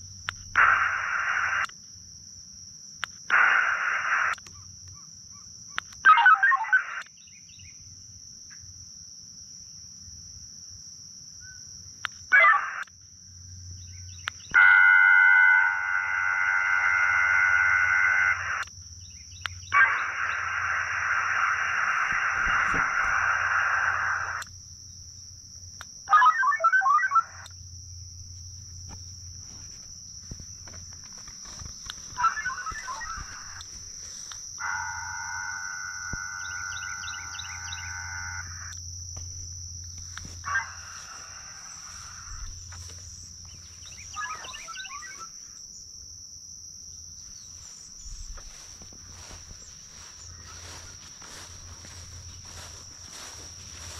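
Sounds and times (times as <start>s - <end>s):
digital modem data tones: 0.0s - 1.7s, 3.3s - 4.4s, 6.1s - 7.1s, 14.4s - 18.7s, 19.3s - 24.5s, 26.0s - 27.6s, 28.9s - 38.8s, 40.0s - 45.4s, 47.4s - 53.9s
high-pitched insect drone: 11.3s - 53.9s.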